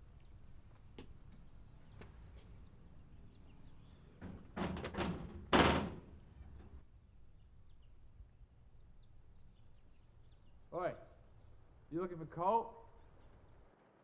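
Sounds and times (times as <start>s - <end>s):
knocking on metal screen door: 4.2s - 6.2s
loud bang on door: 4.2s - 6.2s.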